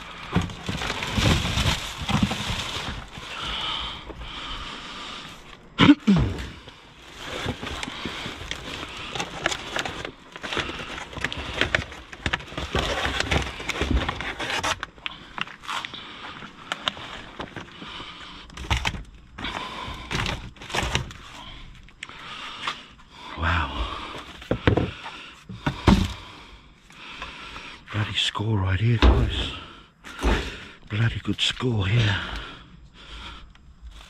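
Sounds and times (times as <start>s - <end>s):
packaging rustling and crinkling: 0.0s - 3.6s, 6.9s - 17.8s, 18.5s - 21.4s
knocks and scrapes: 0.2s - 3.3s.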